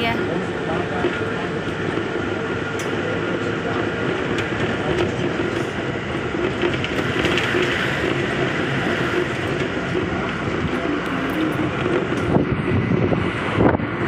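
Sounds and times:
vehicle engine running: 0.0 - 14.0
wind rushing: 11.7 - 14.0.

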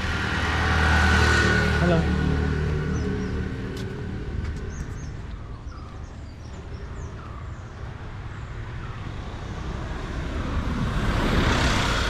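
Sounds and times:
vehicle passing by: 0.0 - 7.2, 8.6 - 12.0.

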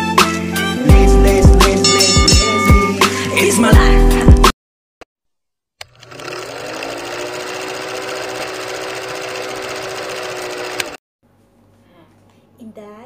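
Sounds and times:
film projector rattling and whirring: 5.8 - 11.0.

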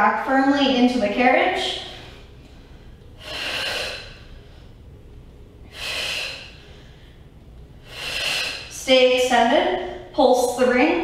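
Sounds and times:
woman breathing forcefully: 1.6 - 8.9.

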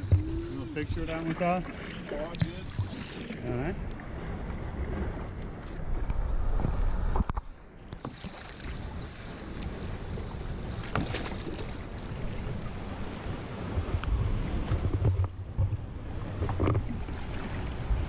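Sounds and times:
wind buffeting microphone: 8.7 - 18.0.

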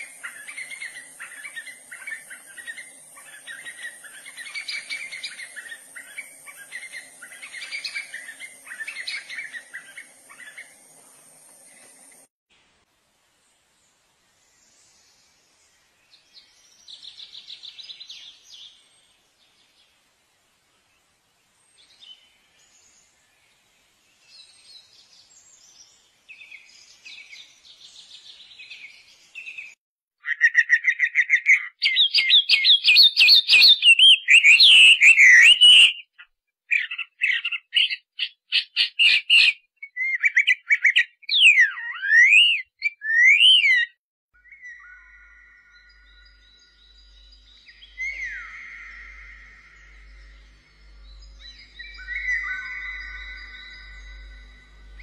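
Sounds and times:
birds chirping and trilling: 0.0 - 12.3, 14.6 - 20.0, 20.8 - 55.0
sweeping bird whistles: 30.3 - 55.0.

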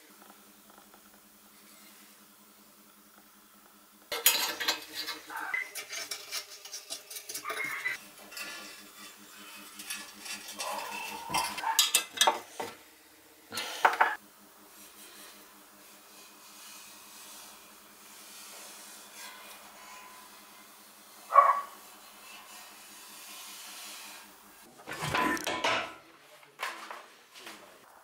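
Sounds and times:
metal clatter: 4.1 - 12.8, 24.9 - 26.0
metal clinking and scraping: 4.1 - 12.8, 24.9 - 26.0.

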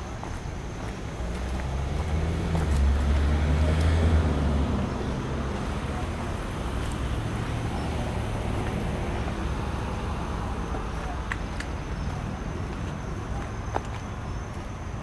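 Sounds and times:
low traffic hum: 0.0 - 15.0
car driving past: 1.3 - 11.2.

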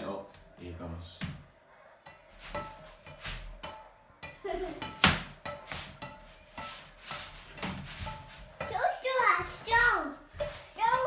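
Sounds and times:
socks knocking on frying pan: 4.8 - 8.8.

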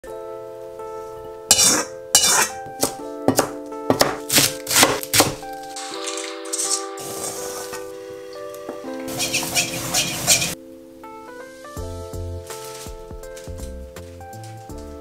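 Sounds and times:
background music: 0.0 - 15.0
wok and utensils clanking: 1.5 - 2.6, 5.8 - 7.9, 8.6 - 10.6
cleaver chopping on board: 1.5 - 5.4.

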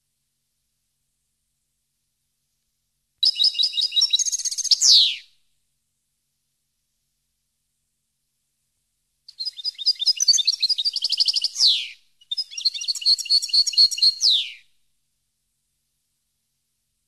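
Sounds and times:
finch singing: 3.2 - 5.2, 9.3 - 14.6.

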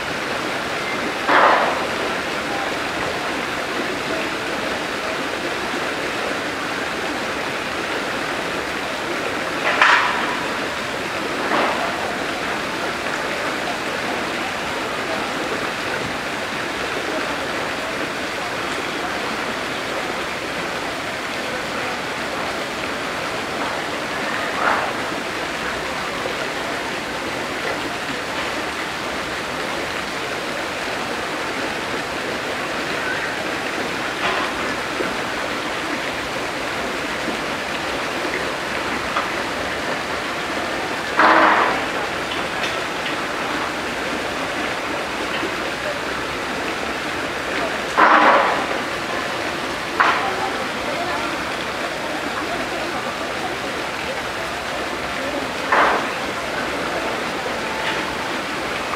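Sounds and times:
running water rushing: 0.0 - 58.9.

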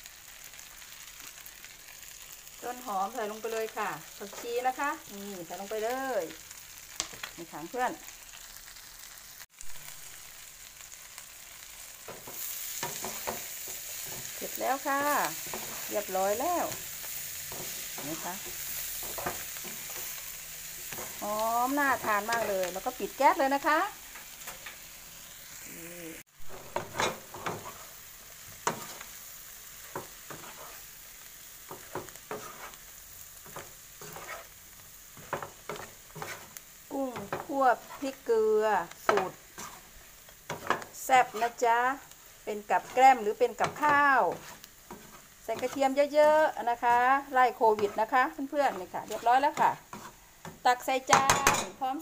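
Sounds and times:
shrimp sizzling in oil: 0.0 - 52.0
spatula scraping a pan: 11.8 - 25.2, 26.5 - 31.0, 31.6 - 51.7.

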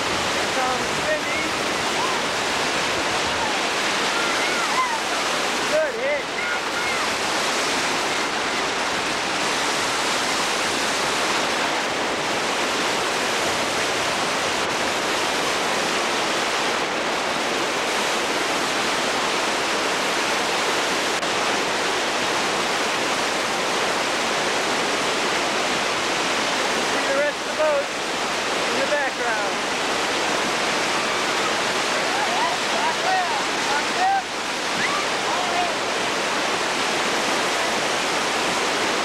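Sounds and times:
whitewater rapids roaring: 0.0 - 39.0.

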